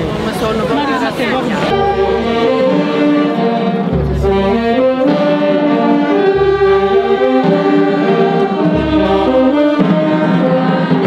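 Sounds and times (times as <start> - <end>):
brass band slow march: 0.0 - 11.0
deep low drum beat: 3.9 - 11.0.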